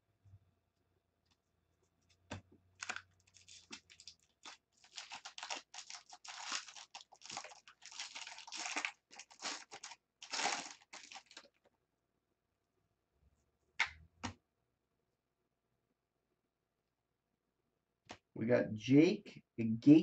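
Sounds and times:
foil wrapper crinkling and tearing: 2.8s - 11.6s.

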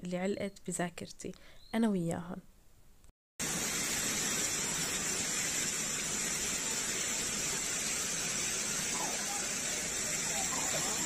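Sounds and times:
flowing water rushing: 3.4s - 11.0s.

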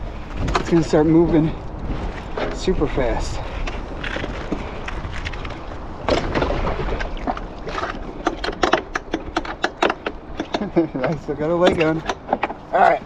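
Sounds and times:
wind rumbling on microphone: 0.0s - 13.0s
sharp clicks and knocks: 7.7s - 12.7s.

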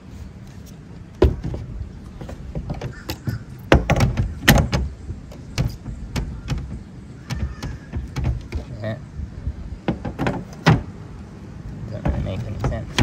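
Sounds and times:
knocks and clatter of fan parts: 1.2s - 8.7s, 9.8s - 10.9s, 11.9s - 13.0s.

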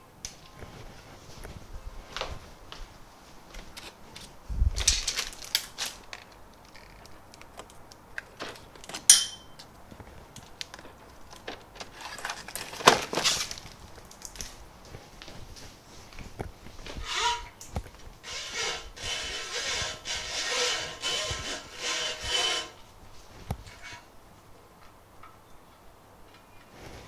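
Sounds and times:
metal parts and tools clattering: 4.8s - 6.9s, 8.4s - 9.6s
ringing metallic clink: 9.1s - 9.6s.

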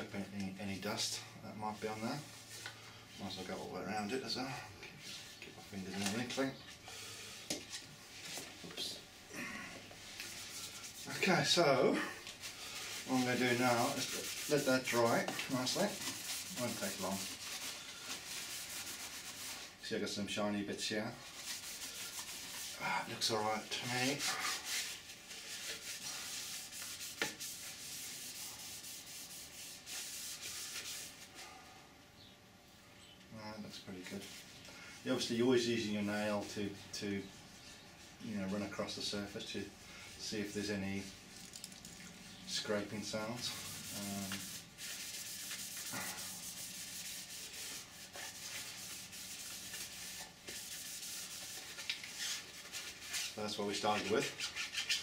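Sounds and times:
paper towel rubbing plastic: 10.0s - 19.9s, 21.0s - 31.5s, 34.1s - 41.2s, 42.2s - 55.0s.

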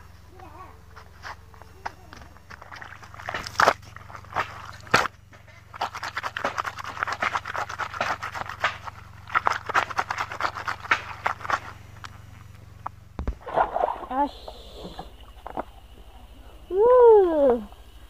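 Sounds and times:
brush scrubbing wet clothes: 1.0s - 12.4s.

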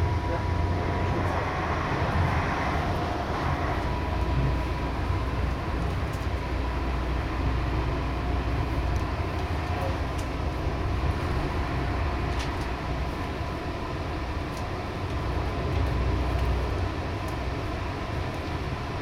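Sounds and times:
train wheels rumbling on track: 0.0s - 19.0s.

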